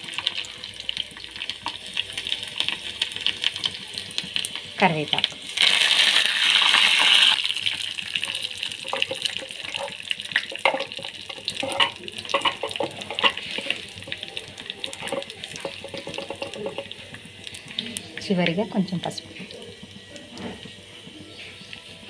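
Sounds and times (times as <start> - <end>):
leaves sizzling in hot oil: 0.0 - 22.0.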